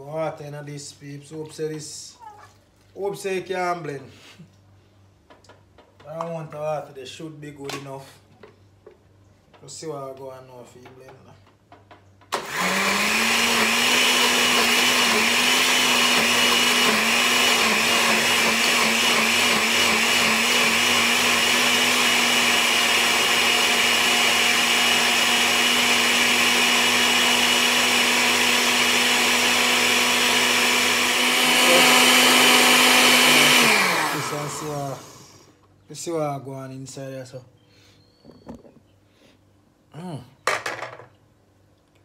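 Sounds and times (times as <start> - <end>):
electric blender motor running: 12.3 - 35.5.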